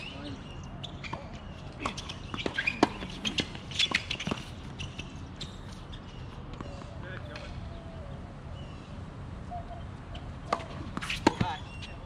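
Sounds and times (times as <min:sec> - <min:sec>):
tennis balls struck and bouncing: 0:00.8 - 0:07.6, 0:10.4 - 0:12.0.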